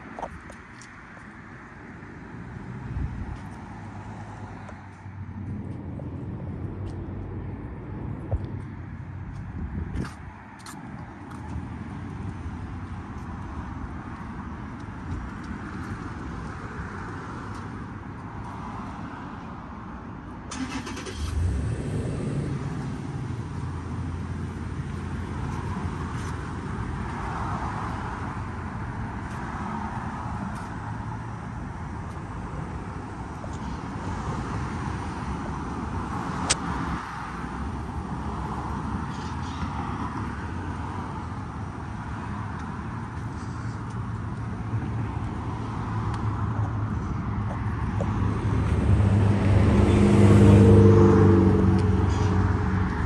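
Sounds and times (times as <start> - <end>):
car engine starting and running: 20.4 - 25.4.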